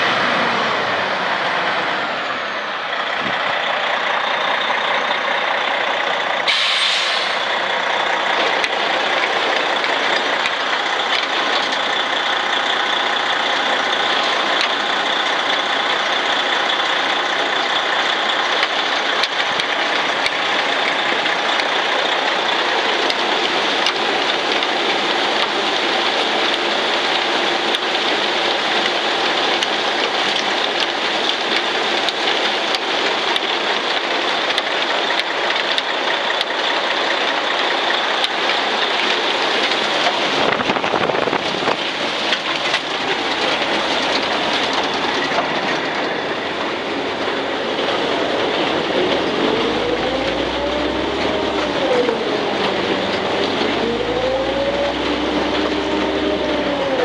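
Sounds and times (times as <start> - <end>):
mixer machinery rattling: 7.5 - 57.0
rising and falling tone: 42.7 - 57.0.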